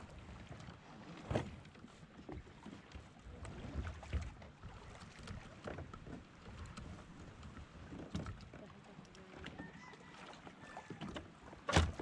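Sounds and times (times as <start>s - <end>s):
gear knocking in boat: 11.0s - 12.0s.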